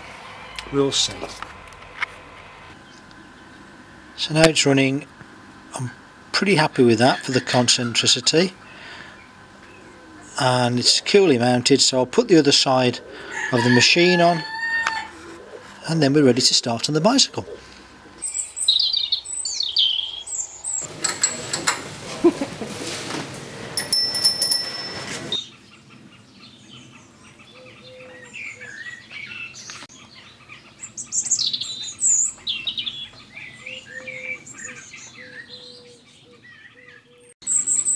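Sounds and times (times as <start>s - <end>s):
small birds chirping: 17.2s - 20.9s, 25.3s - 37.9s.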